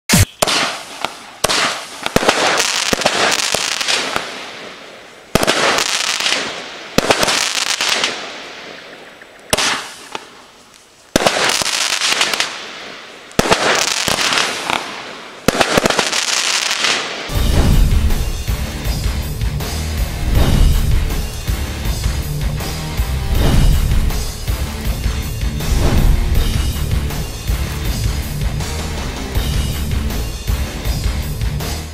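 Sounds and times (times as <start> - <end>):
fireworks bangs: 0.1 - 10.5, 11.1 - 19.0, 20.2 - 22.2, 23.2 - 27.5
fireworks crackling: 0.1 - 30.5.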